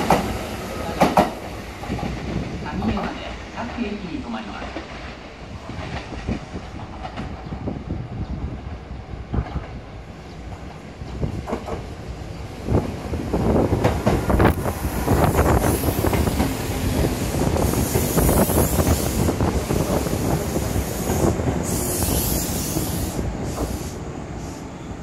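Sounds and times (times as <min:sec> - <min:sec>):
train wheels clicking over rail joints: 0:10.6 - 0:11.9, 0:13.7 - 0:24.0
train brakes hissing: 0:14.9 - 0:25.0.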